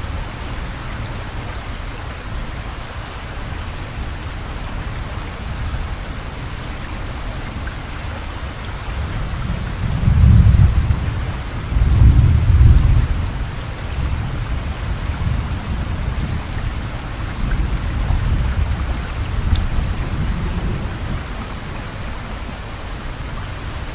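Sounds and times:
heavy rain hissing: 0.0 - 23.9
thunder rumbling: 9.4 - 21.9.

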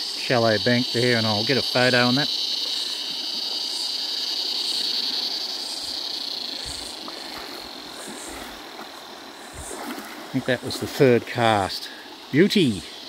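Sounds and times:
cicada chorus drone: 0.0 - 13.0
creek water splashing: 0.0 - 13.0.

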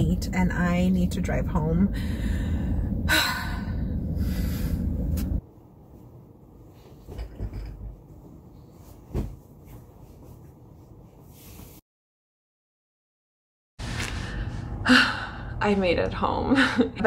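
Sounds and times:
pillows rustling and knocking: 8.8 - 10.4.

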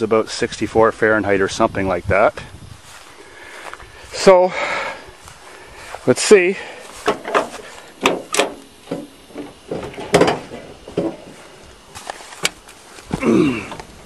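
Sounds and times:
knocks and bumps of climbing in: 7.0 - 14.0.

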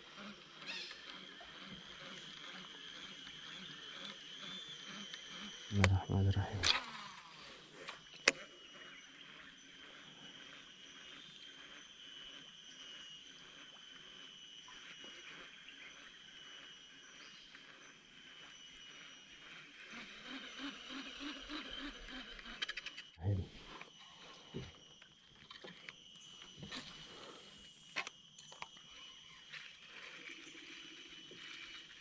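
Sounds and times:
continuous high tone: 0.0 - 32.0
insects chorus: 0.0 - 32.0
low pulses: 4.6 - 6.8, 19.4 - 25.3.

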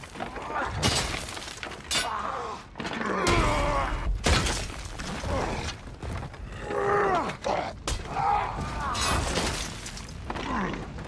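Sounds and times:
stone masonry crashing down: 0.0 - 2.1, 3.2 - 6.2, 8.6 - 10.4.

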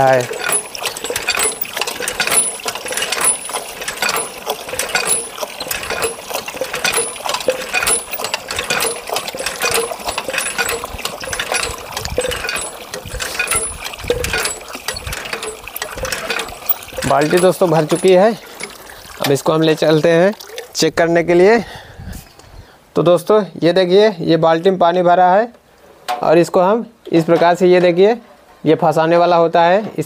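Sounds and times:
hand pump handle clanking: 0.0 - 20.9
water pouring into metal bucket: 0.0 - 21.0.

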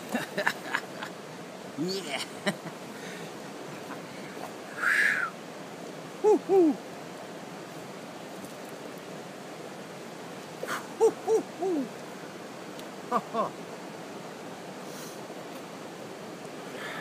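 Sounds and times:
steady hiss: 0.0 - 17.0
short hooting calls: 4.7 - 5.4, 6.2 - 6.8, 10.6 - 12.0.

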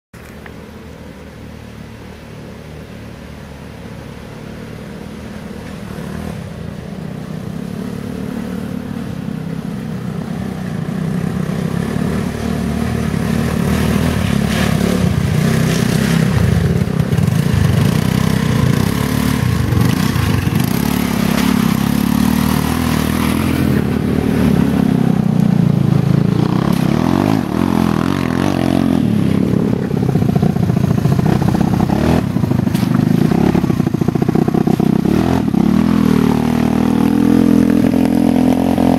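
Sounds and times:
buggy engine revving: 1.1 - 38.9
chassis rattling over rough ground: 10.0 - 38.9.

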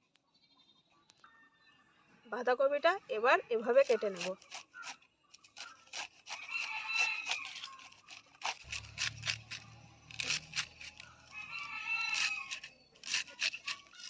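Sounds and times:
knife slicing cabbage: 3.8 - 14.0
rooster crowing: 6.4 - 7.6, 11.1 - 12.7.

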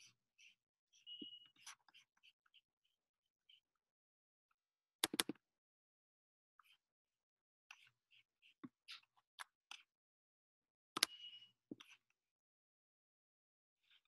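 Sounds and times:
mouse and keyboard clicks: 5.0 - 5.4, 11.0 - 12.0.

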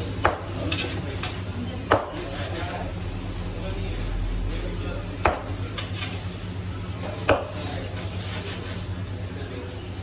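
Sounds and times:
cleaver chopping on wooden block: 0.2 - 0.5, 1.9 - 2.2, 5.2 - 5.5, 7.2 - 7.5.

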